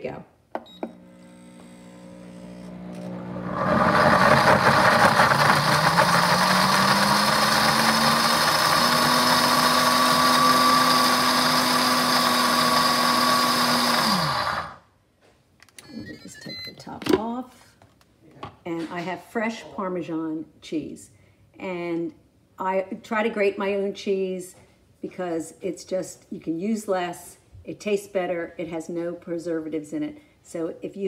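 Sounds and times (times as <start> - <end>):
blender grinding cheese: 1.0 - 14.8.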